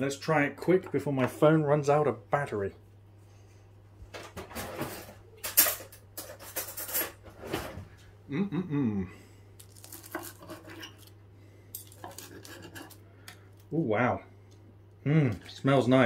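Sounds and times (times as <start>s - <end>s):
cutlery scraping a ceramic plate: 4.8s - 7.2s, 10.1s - 11.0s, 12.0s - 13.0s
brief wordless vocal sound: 8.3s - 9.2s.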